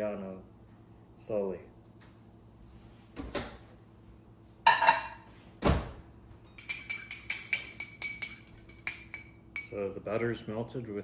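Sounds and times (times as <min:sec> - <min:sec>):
fork clinking against glass bowl: 0:06.6 - 0:09.8.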